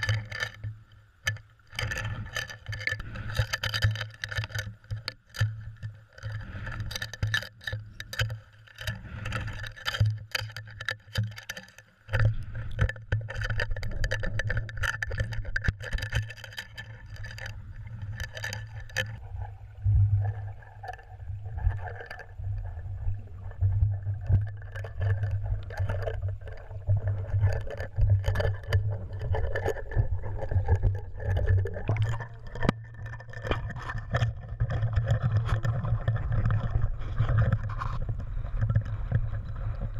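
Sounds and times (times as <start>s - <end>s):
clicks and knocks: 0.0s - 19.2s, 23.8s - 39.2s
underwater rumble: 0.0s - 39.9s.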